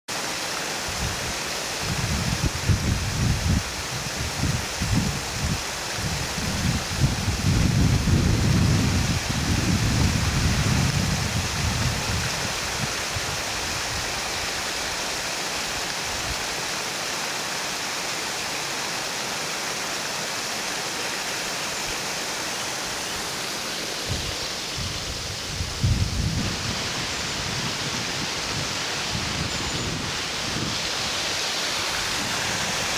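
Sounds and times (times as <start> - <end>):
water splashing down rocks: 0.1 - 32.9
wind rumble on microphone: 0.9 - 14.4, 24.0 - 32.9.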